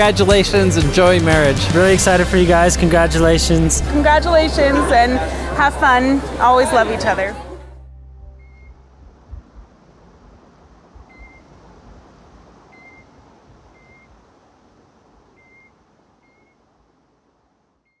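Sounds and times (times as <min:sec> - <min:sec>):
fountain water splashing: 0:00.0 - 0:07.7.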